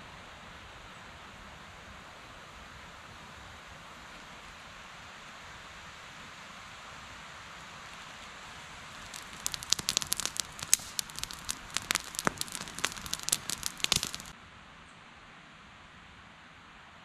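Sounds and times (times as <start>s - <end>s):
steady hiss: 7.2s - 14.3s
crackling and snapping: 8.8s - 14.3s.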